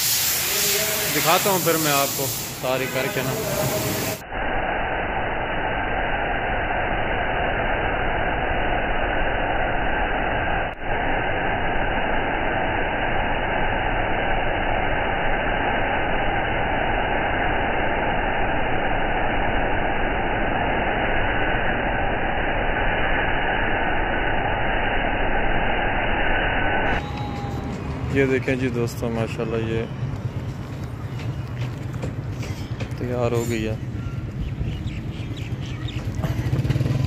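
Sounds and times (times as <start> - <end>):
pressure washer spraying: 0.0 - 4.2.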